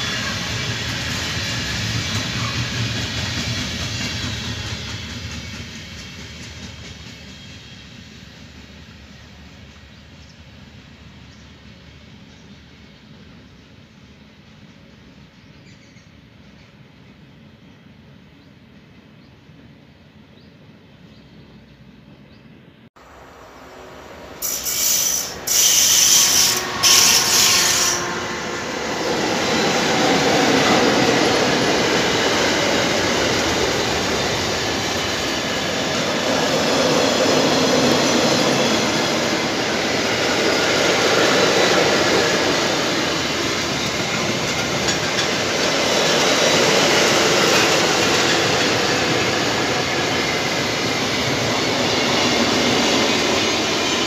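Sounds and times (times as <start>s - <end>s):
high-pitched train noise bursts: 0.0s - 12.2s, 23.0s - 54.0s.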